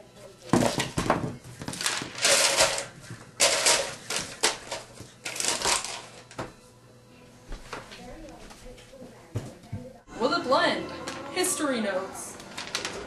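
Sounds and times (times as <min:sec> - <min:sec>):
paper rustling: 0:01.5 - 0:06.3, 0:12.4 - 0:13.0.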